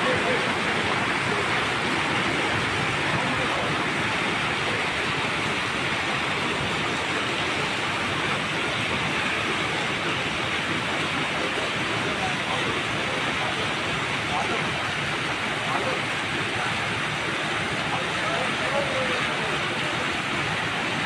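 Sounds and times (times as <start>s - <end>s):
river rushing: 0.0s - 21.0s.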